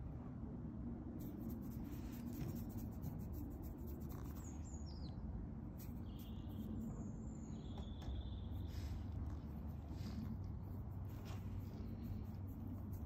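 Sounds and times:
low steady rumble: 0.0s - 13.0s
birds chirping: 4.1s - 10.3s.

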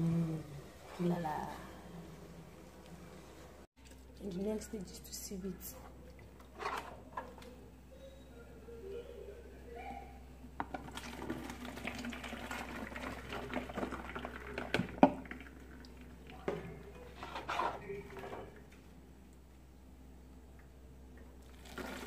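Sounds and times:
liquid pouring and splashing: 10.6s - 16.9s, 21.4s - 22.0s.

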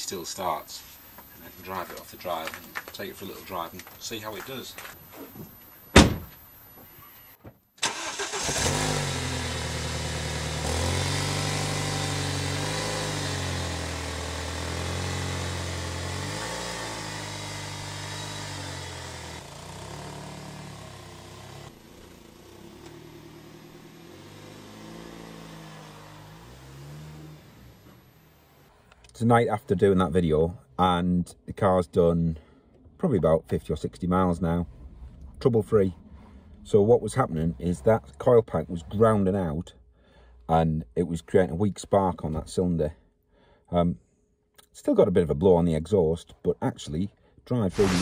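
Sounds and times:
car engine starting and revving: 7.8s - 29.0s, 34.0s - 39.5s, 47.7s - 48.0s.

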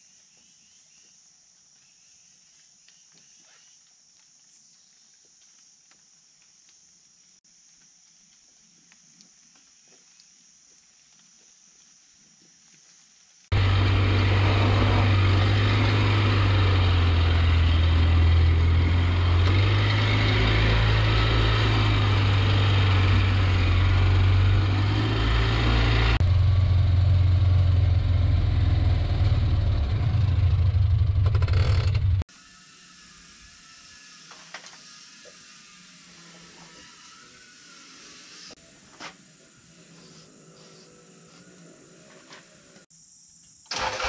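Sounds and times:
utility vehicle engine droning: 13.5s - 32.3s.

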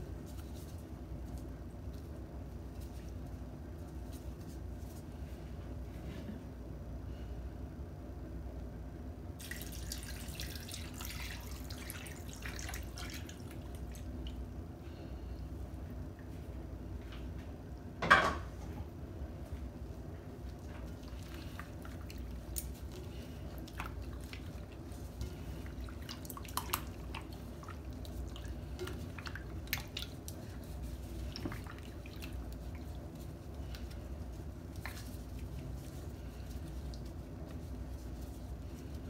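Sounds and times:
steady low hum: 0.0s - 39.0s
wet meat squelching: 20.5s - 39.0s.

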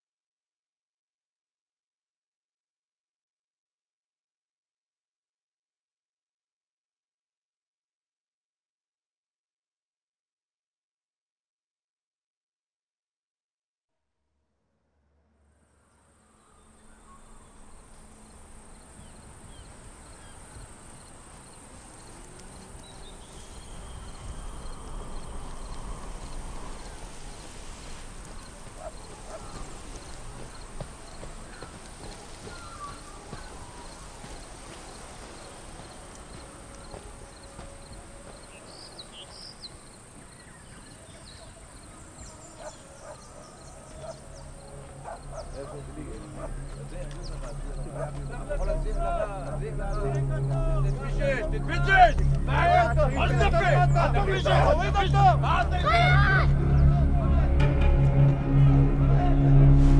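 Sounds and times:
insects buzzing: 16.4s - 50.4s.

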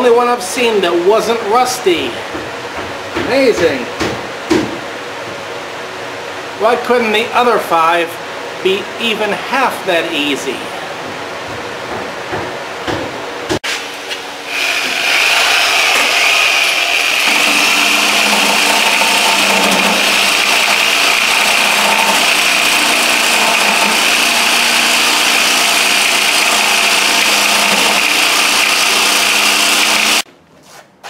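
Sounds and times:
electric grinder grinding metal: 14.5s - 30.2s.

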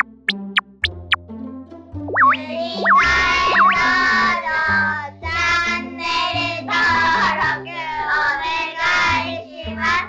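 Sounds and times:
backing music with bass line: 0.0s - 1.2s, 2.0s - 4.1s
high voice singing bouncy tune: 2.1s - 4.5s.

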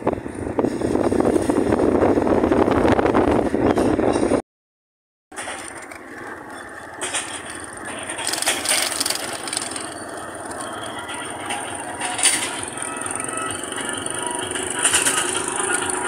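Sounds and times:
vehicle driving on dirt road: 0.0s - 4.4s, 5.3s - 16.0s
vehicle jolts and rattles: 5.3s - 16.0s.

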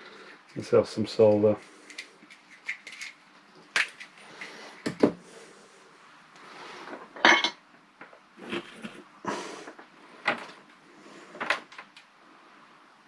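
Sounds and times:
knocks and clinks on bench: 7.2s - 7.6s.

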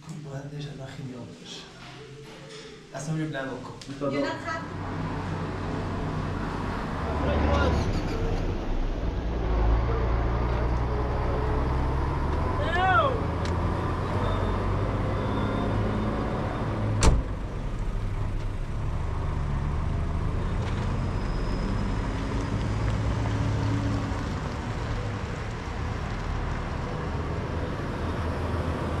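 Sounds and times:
car door slamming: 17.0s - 17.4s.

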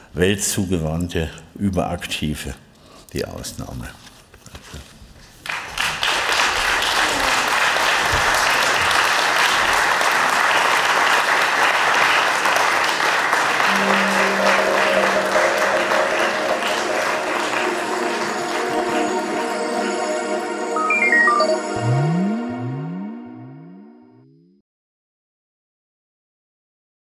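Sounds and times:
audience applauding: 5.4s - 21.4s
music: 13.6s - 24.2s.

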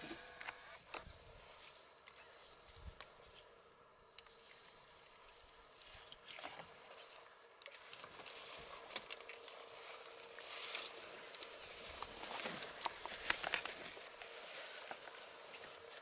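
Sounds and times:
dry grass and twigs rustling: 0.0s - 16.0s.

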